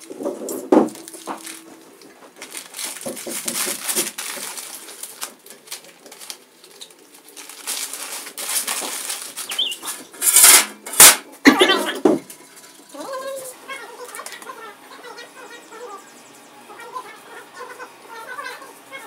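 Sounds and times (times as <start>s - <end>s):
paper crumpling: 0.0s - 10.6s
paper rustling and crackling: 0.0s - 11.3s.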